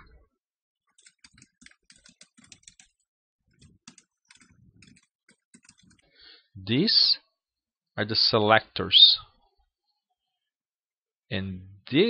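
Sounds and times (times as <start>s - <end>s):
faint typing on keyboard: 0.9s - 6.2s.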